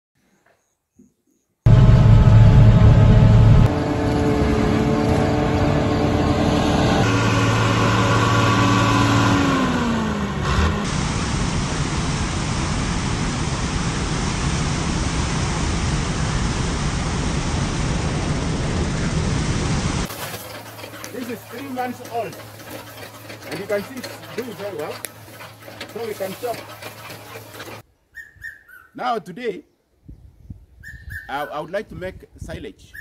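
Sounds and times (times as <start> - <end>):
harvesting machine engine running: 1.7 - 12.7, 18.1 - 27.8.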